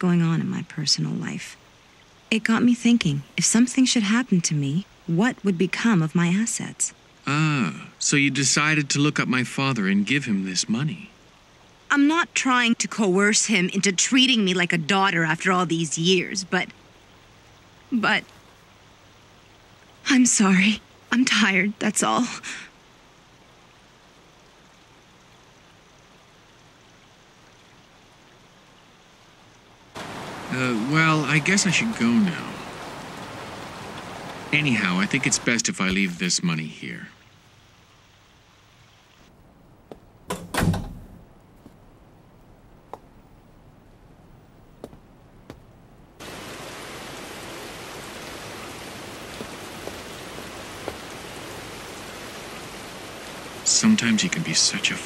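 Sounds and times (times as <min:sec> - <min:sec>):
faint rain falling: 0:00.0 - 0:55.0
door shutting with heavy thud: 0:40.3 - 0:41.2
light taps: 0:44.8 - 0:45.7.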